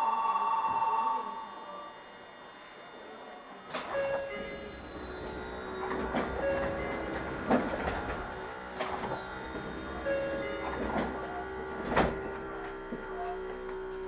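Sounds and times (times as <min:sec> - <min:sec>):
electric train motors whining: 0:00.0 - 0:14.0
wheels rumbling on rail: 0:04.2 - 0:14.0.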